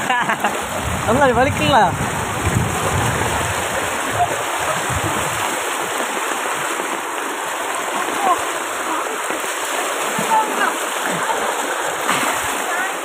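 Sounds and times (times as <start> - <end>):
rain: 0.0 - 13.0
rainwater runoff rushing: 0.0 - 13.0.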